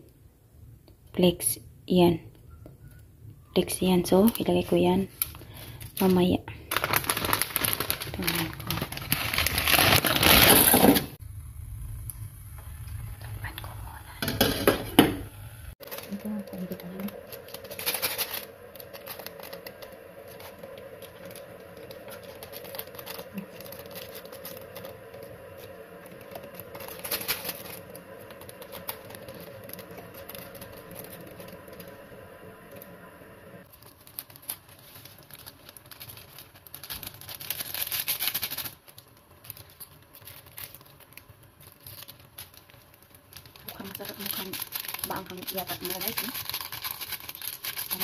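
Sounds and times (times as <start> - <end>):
plastic sachets crinkling: 3.6 - 11.2, 15.8 - 33.0, 33.6 - 48.0
steady low hum: 11.1 - 33.7.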